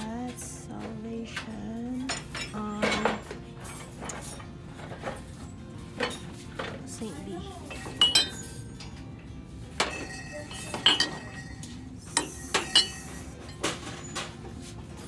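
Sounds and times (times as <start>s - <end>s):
ceramic mugs clinking: 2.0s - 7.0s, 7.7s - 14.4s.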